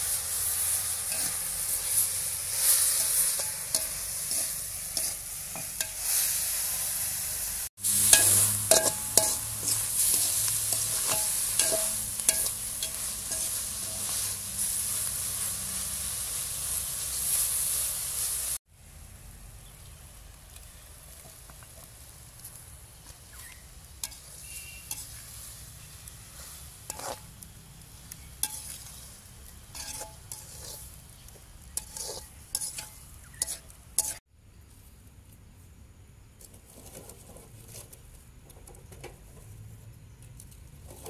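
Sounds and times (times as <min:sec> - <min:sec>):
food sizzling: 0:00.0 - 0:18.6, 0:20.3 - 0:34.3
metal ladle clinking on pot: 0:08.1 - 0:14.0.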